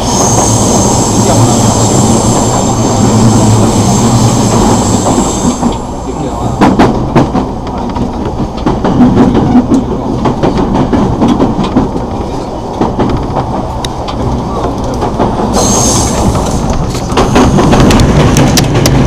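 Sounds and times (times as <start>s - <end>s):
train wheels rumbling on rails: 0.0s - 19.0s
clacks over rail joints: 4.4s - 19.0s.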